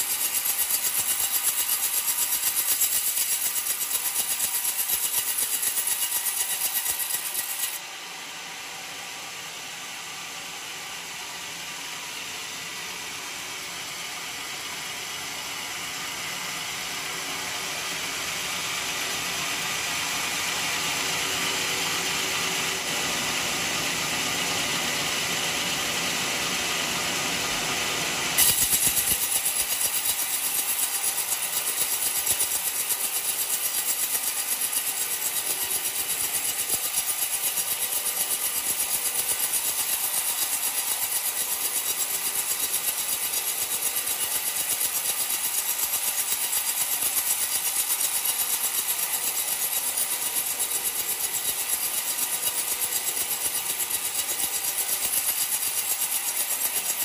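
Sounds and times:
band sawmill cutting log: 0:00.0 - 0:07.8, 0:17.1 - 0:57.0.

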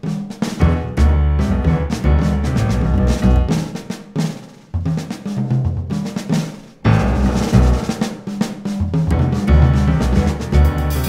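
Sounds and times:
drum kit hits: 0:00.0 - 0:11.0
jazz piano: 0:00.0 - 0:11.0
heavy bass line: 0:00.6 - 0:03.8, 0:06.9 - 0:08.1, 0:08.9 - 0:11.0.

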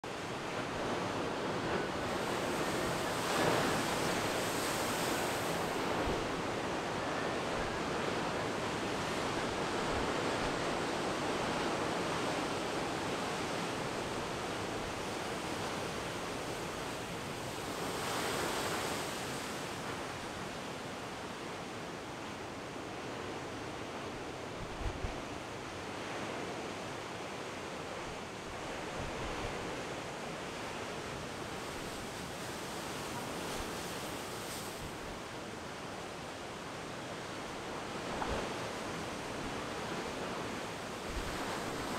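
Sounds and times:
waves crashing against rocks: 0:00.6 - 0:10.6, 0:15.3 - 0:20.3.

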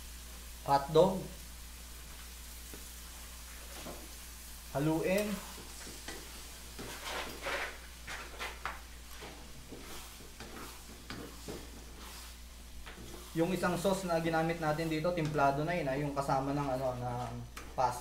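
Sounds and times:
pan sizzling: 0:00.0 - 0:18.0
spatula scraping a wok: 0:05.1 - 0:15.2.

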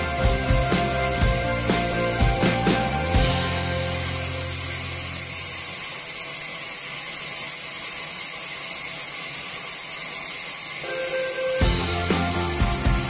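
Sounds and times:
low hum: 0:00.0 - 0:05.8
sawmill machinery hiss: 0:00.0 - 0:13.0.

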